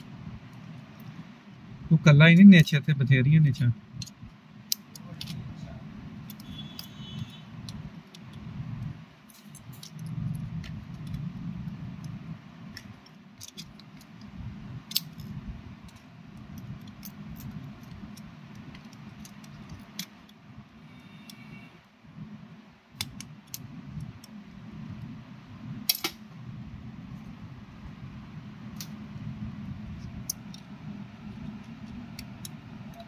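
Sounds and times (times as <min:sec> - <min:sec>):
low background rumble: 0:03.0 - 0:20.8, 0:22.0 - 0:33.0
fingers clicking and tapping parts: 0:04.0 - 0:05.4, 0:06.2 - 0:20.4, 0:30.0 - 0:33.0.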